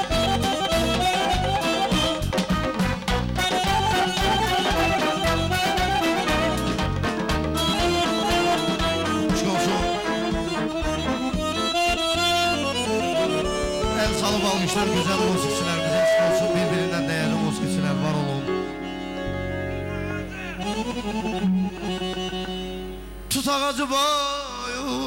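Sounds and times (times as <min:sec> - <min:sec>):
drums: 0:00.0 - 0:17.1
accordion: 0:00.0 - 0:23.5
keyboard: 0:00.0 - 0:24.6.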